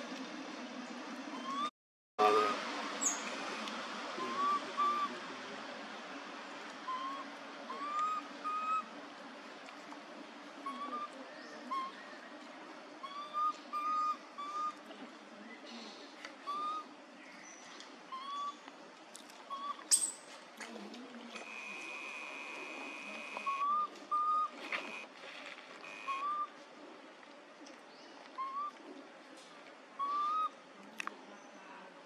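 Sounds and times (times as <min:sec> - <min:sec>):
steady outdoor hiss: 0:00.0 - 0:32.0
whistle-like animal calls: 0:04.2 - 0:05.2, 0:23.2 - 0:24.6, 0:25.9 - 0:26.5, 0:30.0 - 0:30.5.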